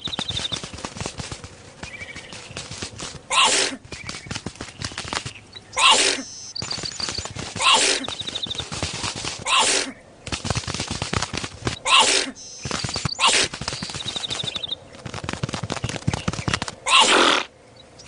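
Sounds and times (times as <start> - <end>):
rapid patter of tiny ticks: 0.0 - 9.5, 10.2 - 17.0
high trilled chirps: 6.2 - 7.3.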